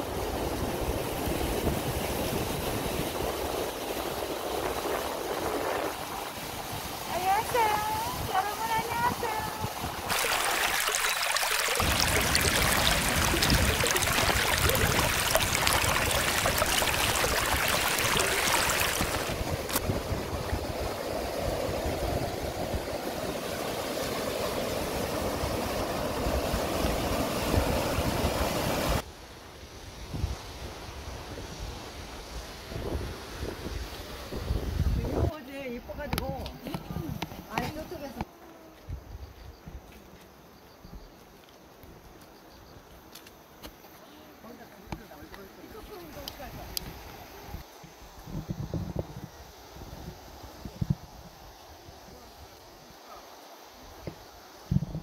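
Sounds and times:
wind rumble on microphone: 0.0s - 10.1s, 11.8s - 23.4s, 29.9s - 38.0s, 46.4s - 52.6s, 54.0s - 55.0s
stream rushing over boulders: 0.0s - 29.1s.

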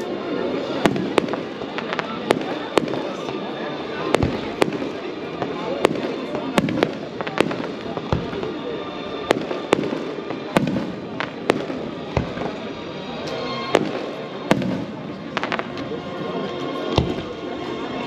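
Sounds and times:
fireworks bangs: 0.6s - 12.8s, 13.7s - 15.9s.

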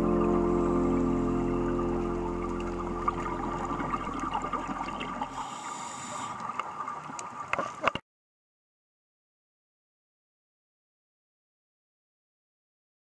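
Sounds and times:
soft background music: 0.0s - 5.1s
crackly underwater hiss: 0.6s - 7.9s.

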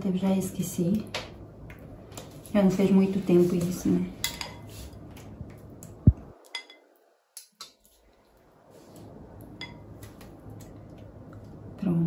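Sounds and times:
metal spoon clinking on glass bowl: 6.5s - 6.9s.

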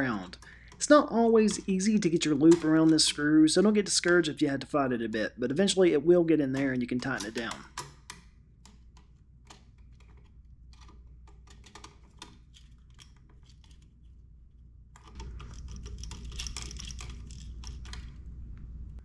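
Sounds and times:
pliers and wire clicking on plastic: 6.5s - 13.9s.

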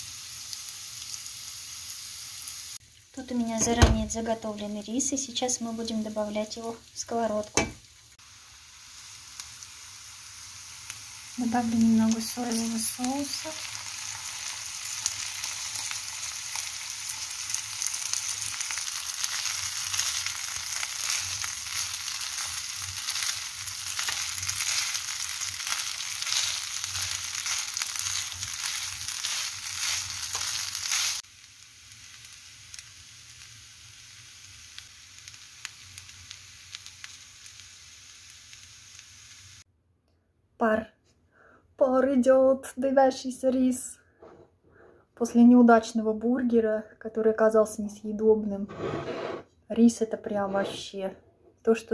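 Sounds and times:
food sizzling in a pan: 0.0s - 39.7s.

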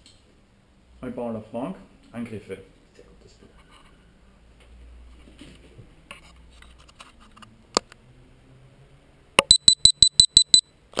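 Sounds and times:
short high electronic beeps: 9.4s - 10.7s.

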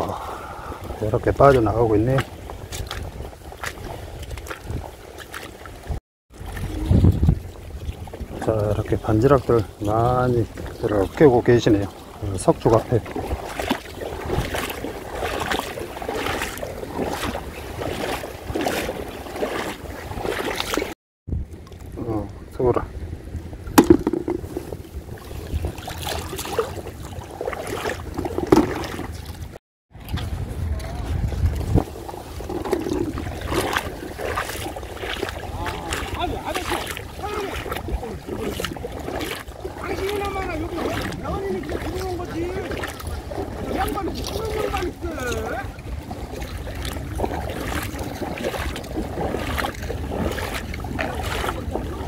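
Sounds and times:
water sloshing and splashing: 0.0s - 52.0s
wind rumbling on microphone: 0.0s - 52.0s
sharp knocks: 23.8s - 24.8s.

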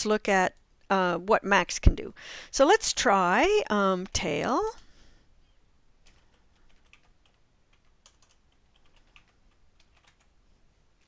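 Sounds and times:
typing on computer keyboard: 6.0s - 10.4s.

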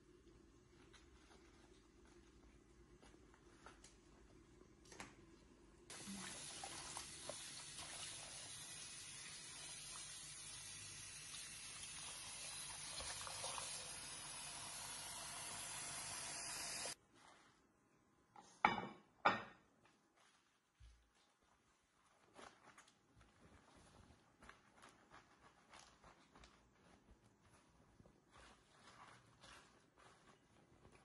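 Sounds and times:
water running and splashing: 5.9s - 17.0s.

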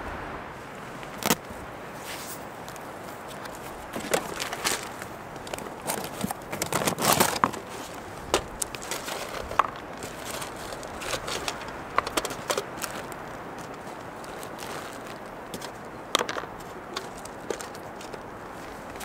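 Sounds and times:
background hiss: 0.0s - 6.5s
camping gear rustling: 0.6s - 19.0s
clicks and knocks of gear on rock: 3.3s - 19.0s.

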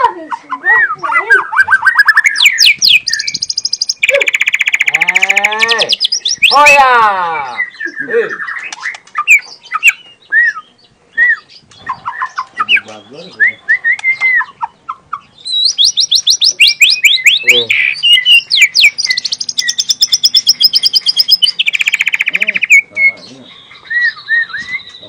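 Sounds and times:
songbird singing: 0.0s - 25.0s
rapid repeated high bird notes: 1.0s - 6.8s, 15.5s - 25.0s.

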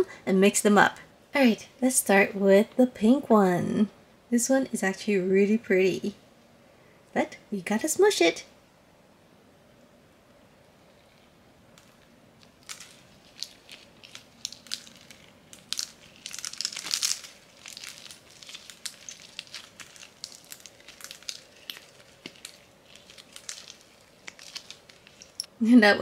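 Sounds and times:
slime squishing and crackling: 11.8s - 25.4s.

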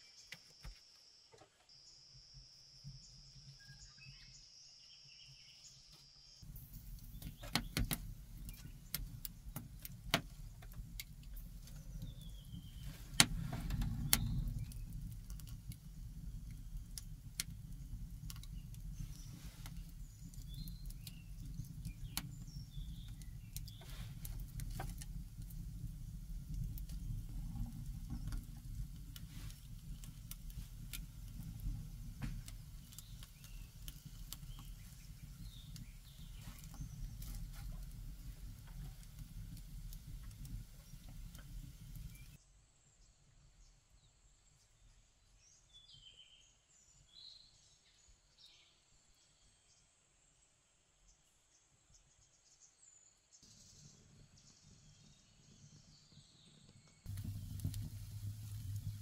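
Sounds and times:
low fire rumble: 6.4s - 42.4s, 53.6s - 59.0s
wood fire crackling and popping: 6.4s - 42.4s, 57.0s - 59.0s.

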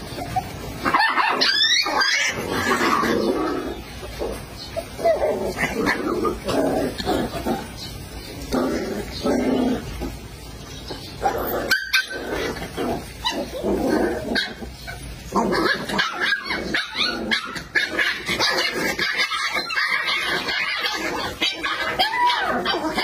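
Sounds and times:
puppies yipping and barking: 0.0s - 23.0s.

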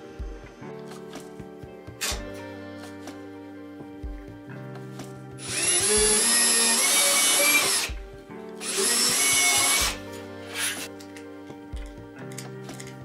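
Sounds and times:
electric drill whining: 5.4s - 8.0s, 8.6s - 10.9s.

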